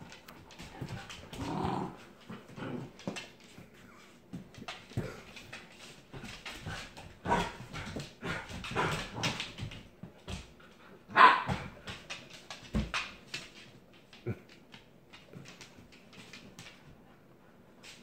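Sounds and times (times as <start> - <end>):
dog barking: 11.1 - 11.6.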